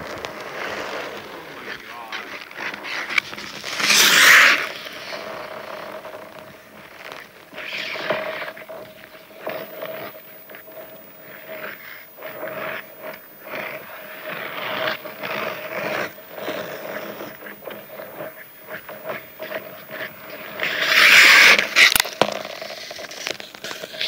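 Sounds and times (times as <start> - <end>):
skate blades scraping ice: 0.1 - 6.2, 6.8 - 9.3, 20.6 - 24.0
sharp click: 9.5 - 22.2.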